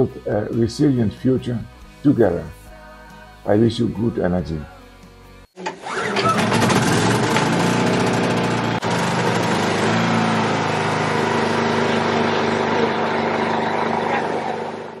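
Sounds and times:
generator engine running: 5.6 - 15.0.

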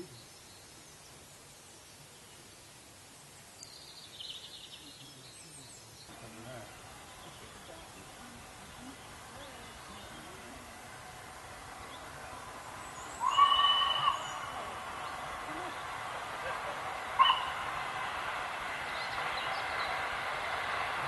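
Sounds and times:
approaching train rumble: 6.1 - 21.0
steam locomotive whistle: 11.5 - 21.0.

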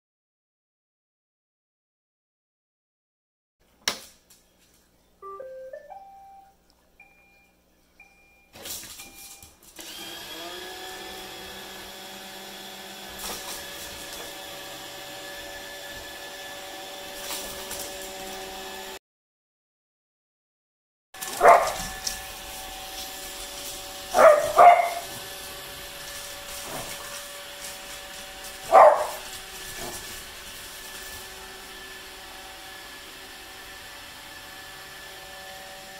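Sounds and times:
robot vacuum motor running: 9.8 - 19.0, 21.2 - 35.9
dog barking: 21.3 - 21.9, 24.1 - 25.1, 28.6 - 30.0.

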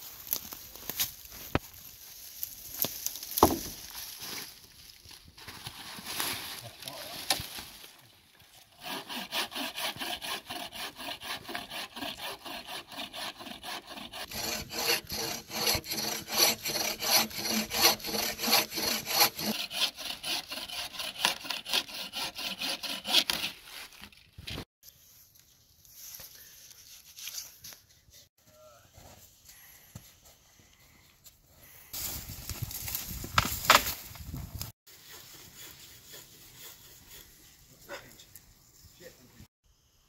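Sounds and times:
bow saw cutting log: 8.7 - 24.1, 34.9 - 38.2.

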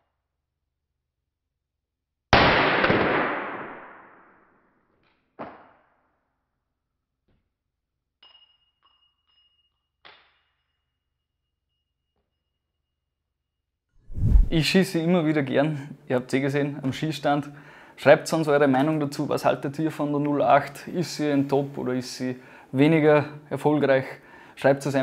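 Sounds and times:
gunshot with echo: 2.4 - 4.3
small metallic clinks: 8.1 - 12.9.

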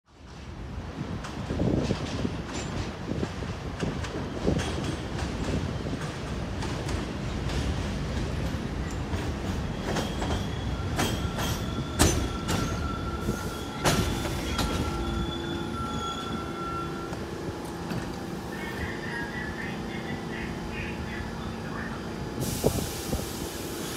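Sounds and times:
subway train wheels knocking: 0.2 - 19.5
high-pitched wheel squeal: 9.7 - 17.1.

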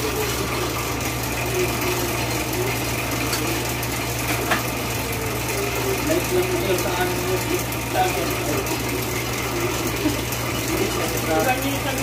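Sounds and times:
electric motor humming: 0.0 - 12.0.

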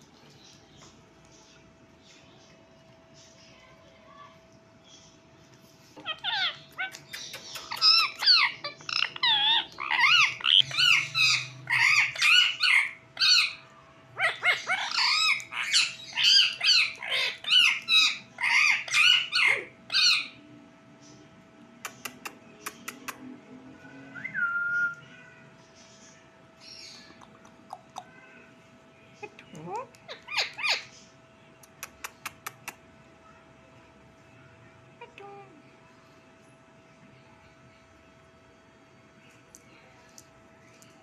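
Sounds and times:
parakeet calling: 6.0 - 13.6, 14.2 - 20.4, 29.5 - 31.1.

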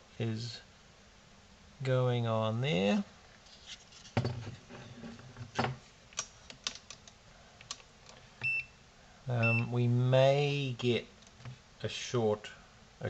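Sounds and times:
multimeter beep: 8.4 - 8.8, 9.4 - 9.7.

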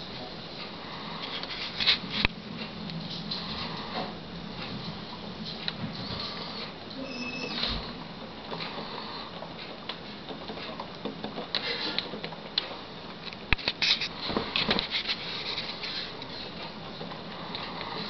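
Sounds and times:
rain pattering: 0.0 - 7.1, 14.8 - 18.0.

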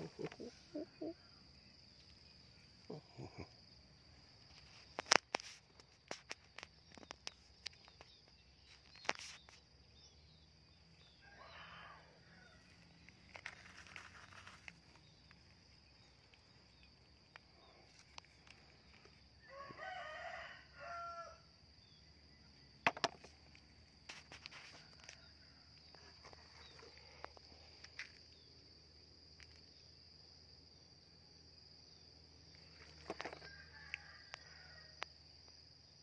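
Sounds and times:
high insect drone: 0.0 - 36.0
rooster crowing: 11.2 - 12.7, 19.4 - 21.4, 33.4 - 35.0.

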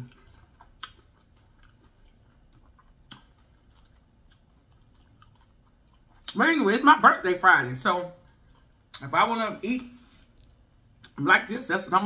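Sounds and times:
faint chewing: 0.0 - 6.4, 8.2 - 9.0, 10.0 - 11.2.

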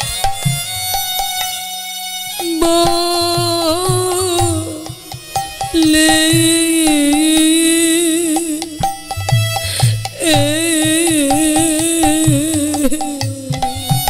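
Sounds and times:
hand drum strokes: 0.0 - 14.0
wavering devotional melody: 0.0 - 14.0.

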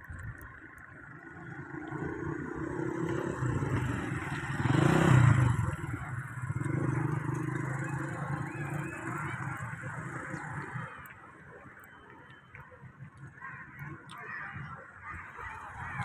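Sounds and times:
motor vehicle passing: 1.4 - 11.2.

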